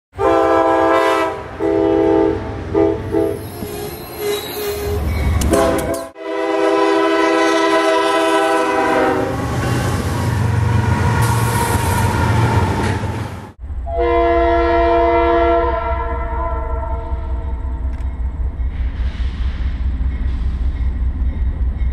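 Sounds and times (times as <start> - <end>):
locomotive air horn blasts: 0.2 - 3.5, 5.4 - 9.9, 13.8 - 17.6
train wheels passing: 0.7 - 14.9, 15.6 - 21.9.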